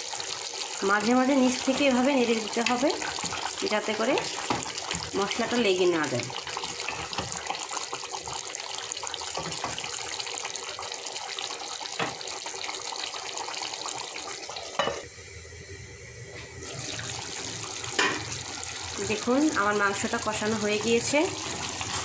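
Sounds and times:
curry sizzling in pot: 0.0 - 15.1, 16.4 - 22.0
wooden spatula scraping pot: 2.6 - 5.5.

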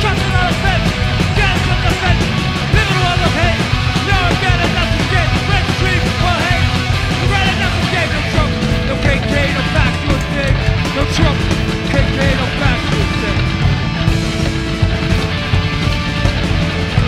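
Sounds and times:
shouted vocals: 0.0 - 13.6
punk rock band playing: 0.0 - 17.0.

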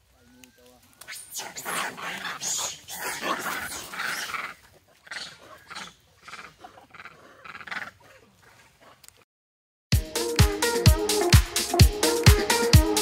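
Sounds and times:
macaques giving harsh calls: 0.9 - 8.3.

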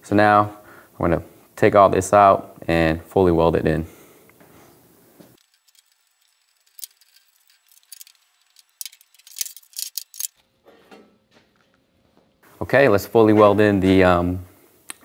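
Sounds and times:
metal bolt and washers clinking: 5.4 - 10.4.

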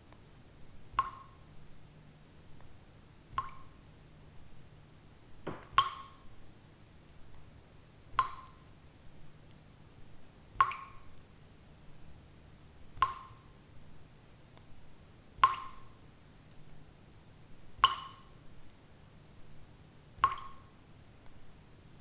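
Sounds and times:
water dripping: 0.9 - 1.8, 3.3 - 3.8, 5.4 - 6.3, 8.1 - 8.8, 10.5 - 11.4, 12.9 - 13.7, 15.4 - 16.8, 17.8 - 18.8, 20.2 - 21.4.

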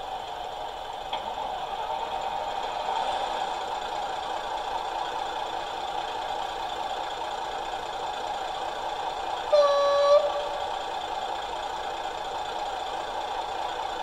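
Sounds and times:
diesel engine idling: 0.0 - 14.0
horn sounding: 9.5 - 10.9.

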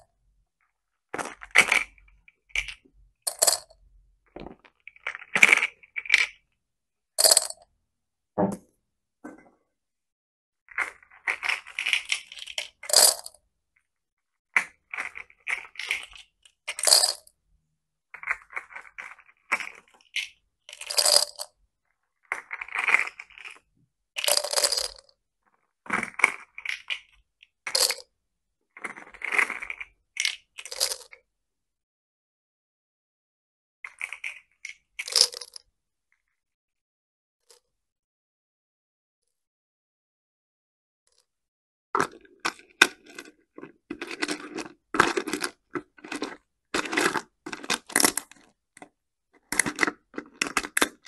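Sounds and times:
plastic beads clattering into glass jar: 3.3 - 3.7, 7.2 - 7.6, 10.8 - 13.4, 14.9 - 17.2, 20.7 - 21.5, 24.2 - 25.0, 27.7 - 28.0, 35.0 - 35.6.

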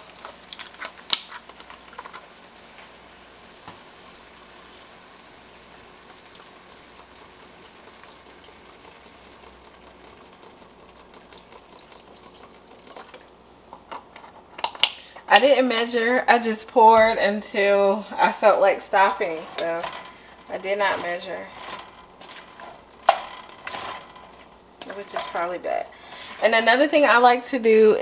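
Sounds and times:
vegetables sizzling: 0.0 - 14.1, 15.0 - 28.0
broth pouring into a pot: 3.4 - 13.4.

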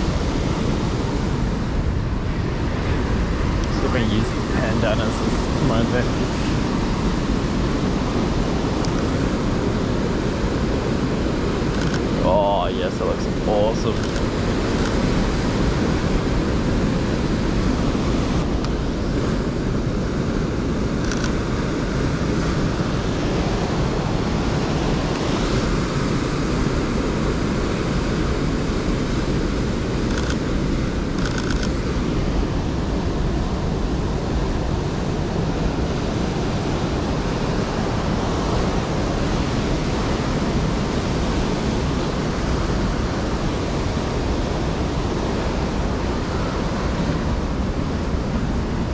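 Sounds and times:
wind buffeting microphone: 0.0 - 12.6.

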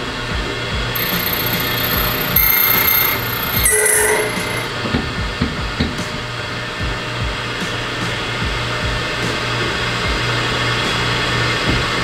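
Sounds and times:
key cutting machine running: 1.0 - 4.7.

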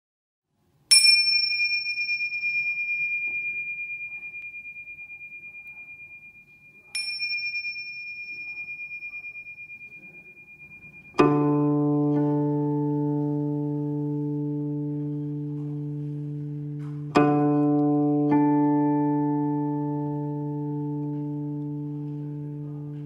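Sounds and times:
small hand cymbals ringing: 0.9 - 12.0
plucked string low chord: 10.1 - 23.0.

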